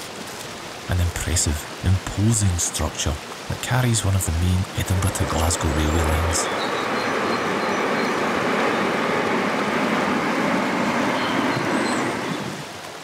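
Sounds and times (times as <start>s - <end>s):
train rumbling over viaduct: 4.7s - 12.7s.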